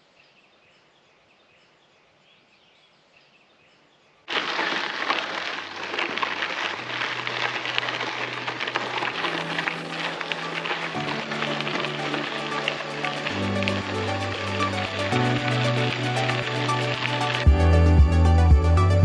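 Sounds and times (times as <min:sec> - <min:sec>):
faint birdsong: 0:00.0 - 0:04.3
music with bass and percussion: 0:15.0 - 0:19.0.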